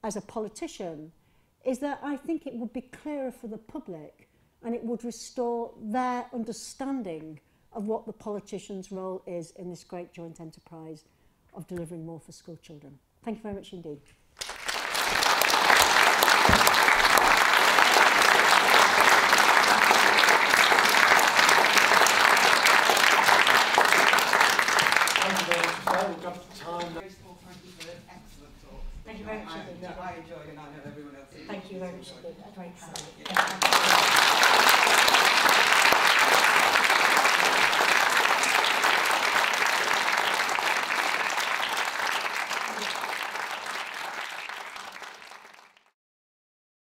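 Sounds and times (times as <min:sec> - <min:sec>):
audience applauding: 0:14.4 - 0:27.0, 0:33.2 - 0:46.0.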